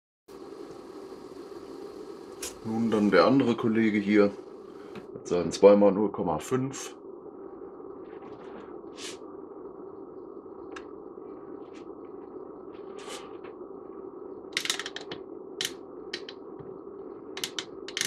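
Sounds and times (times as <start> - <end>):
steady hum: 0.3 - 18.0
test clips clicking and rattling: 14.6 - 15.2, 17.4 - 18.0.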